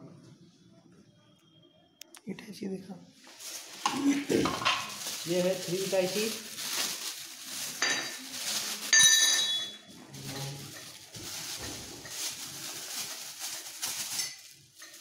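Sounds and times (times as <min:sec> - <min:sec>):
plastic packaging crinkling: 0:03.2 - 0:15.0.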